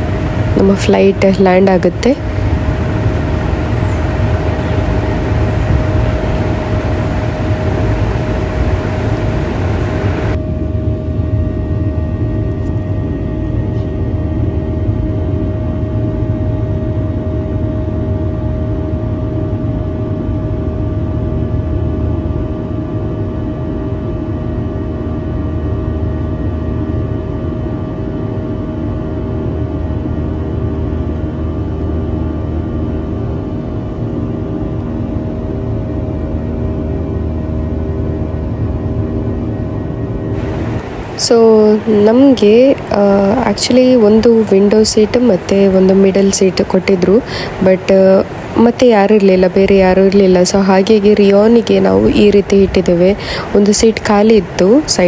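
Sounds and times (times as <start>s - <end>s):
constant cabin hum: 0.0s - 55.0s
jet engine rumble and hiss: 0.0s - 55.0s.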